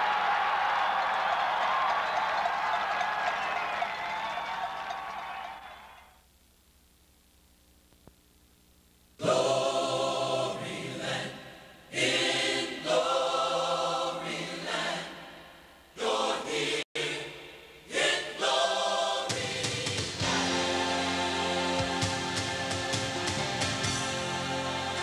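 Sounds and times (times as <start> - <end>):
choir singing held chords: 9.2 - 25.0.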